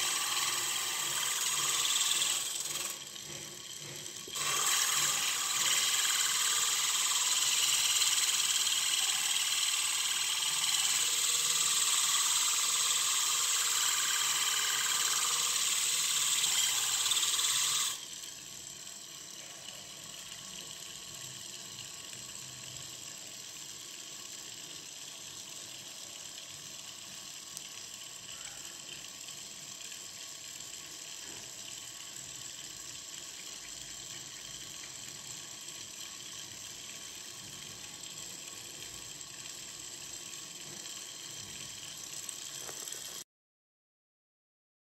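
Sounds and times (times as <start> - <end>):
motor running: 0.0 - 18.0
wood block on sanding disc: 0.0 - 18.0.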